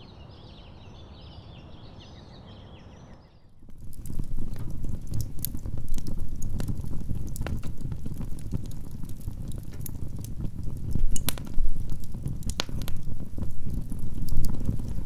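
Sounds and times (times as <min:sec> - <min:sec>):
fire flames rumbling: 0:03.6 - 0:15.0
logs crackling and popping: 0:03.6 - 0:15.0.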